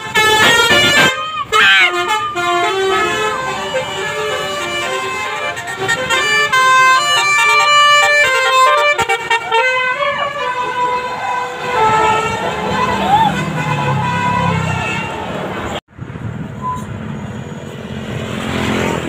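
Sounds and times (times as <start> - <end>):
musical air horn playing tune: 0.0 - 15.2
bus passing with low rumble: 0.0 - 19.0.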